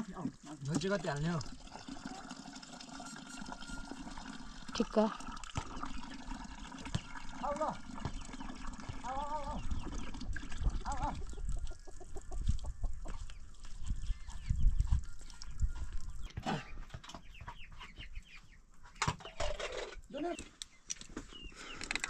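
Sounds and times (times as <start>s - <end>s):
chicken clucking: 10.7s - 19.0s.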